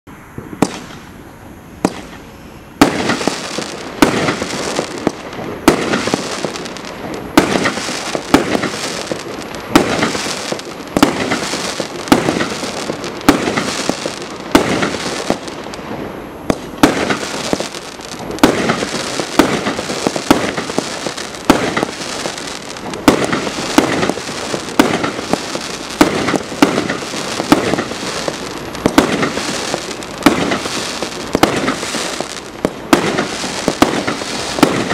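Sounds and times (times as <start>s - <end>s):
fireworks bangs: 0.3s - 34.9s.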